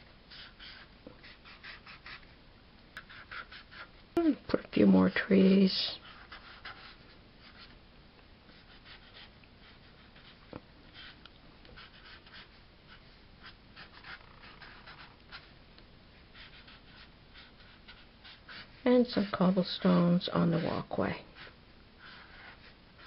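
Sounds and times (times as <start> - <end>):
marker scratching on paper: 0.3 - 2.3, 3.0 - 3.9, 6.0 - 7.7, 8.5 - 15.5, 16.3 - 19.6, 20.4 - 23.0.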